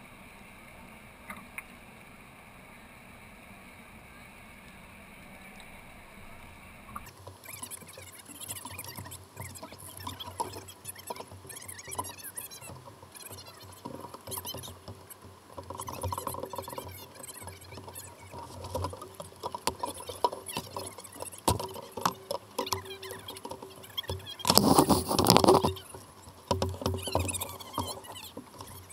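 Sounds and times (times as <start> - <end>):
water lapping against kayak hulls: 0.0 - 28.9
hulls and paddles knocking: 7.0 - 28.9.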